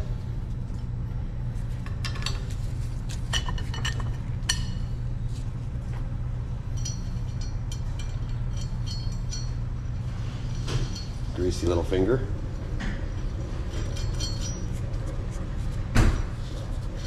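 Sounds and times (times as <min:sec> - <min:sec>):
steady low hum: 0:00.0 - 0:17.0
metallic clinks of nuts and bolts: 0:06.7 - 0:09.6, 0:13.7 - 0:14.8.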